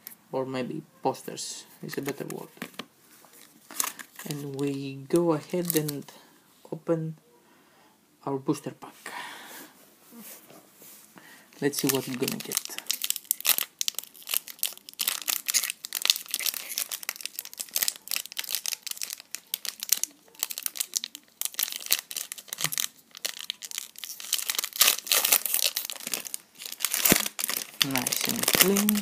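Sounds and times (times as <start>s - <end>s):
foil wrapper crinkling: 1.9s - 4.7s, 5.4s - 6.2s, 11.7s - 29.0s.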